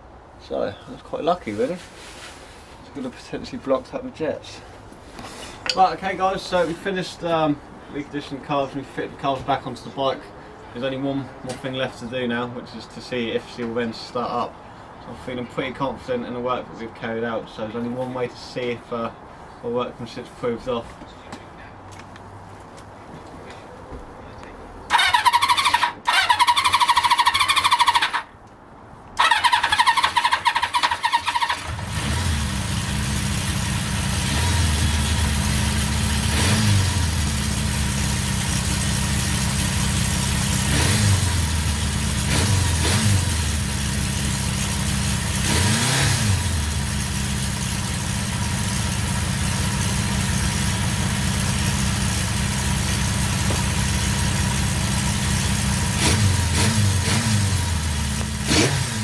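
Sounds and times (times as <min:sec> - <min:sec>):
motorcycle engine running: 0:31.5 - 0:59.0.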